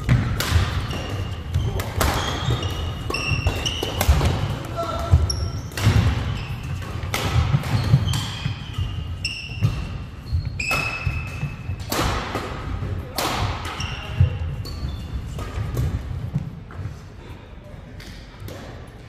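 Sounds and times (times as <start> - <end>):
sneakers squeaking on wooden floor: 0.0 - 11.9, 13.6 - 17.0
rackets striking shuttlecock: 0.0 - 16.5.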